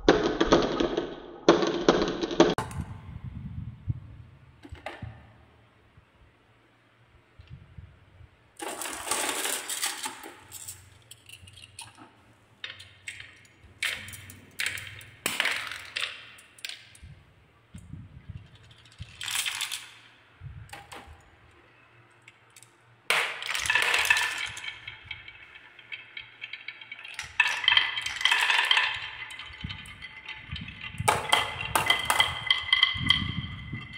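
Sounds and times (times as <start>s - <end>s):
glass marbles rolling on wood: 8.6s - 12.0s, 12.6s - 17.2s, 18.3s - 33.9s
marbles clinking: 8.6s - 12.0s, 12.6s - 17.2s, 18.4s - 21.2s, 22.2s - 33.9s.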